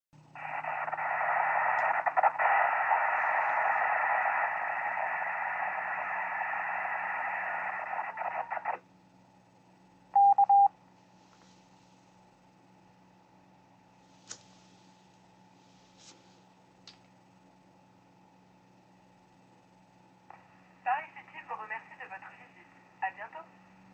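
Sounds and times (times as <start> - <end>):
loud radio hiss: 0.4 - 8.8, 20.3 - 23.5
short beep tone pulses: 10.2 - 10.7.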